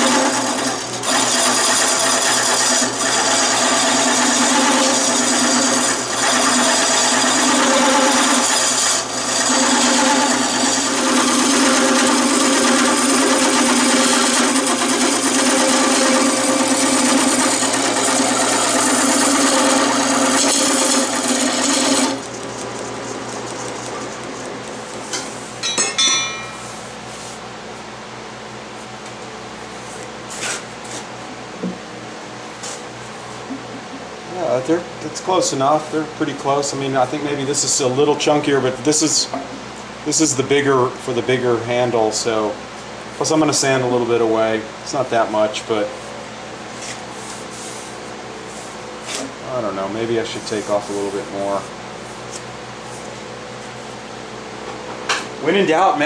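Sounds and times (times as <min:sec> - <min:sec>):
turning tool shaving wood: 0:00.0 - 0:25.5
wood lathe running: 0:00.0 - 0:26.5, 0:48.6 - 0:51.6
brief scrape: 0:30.0 - 0:31.1.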